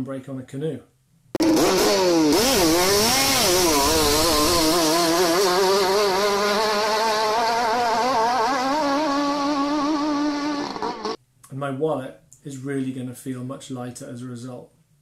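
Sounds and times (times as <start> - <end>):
speedboat engine at full throttle: 1.4 - 11.2.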